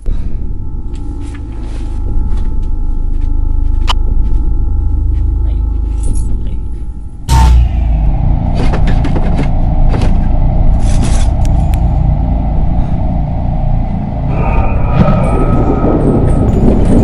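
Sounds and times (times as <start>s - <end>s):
steady low rumble: 0.0s - 17.0s
sudden loud hit: 7.3s - 12.5s.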